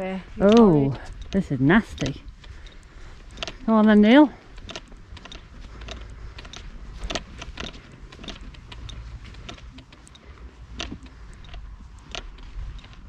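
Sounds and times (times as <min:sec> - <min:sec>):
soft clicks and knocks: 0:00.4 - 0:13.0
wind rumble on microphone: 0:10.6 - 0:13.0.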